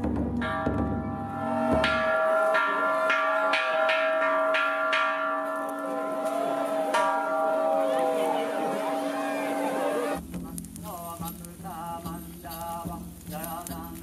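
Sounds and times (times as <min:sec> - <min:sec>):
deep drum rumbling: 0:00.0 - 0:02.5
bells ringing: 0:00.4 - 0:10.2.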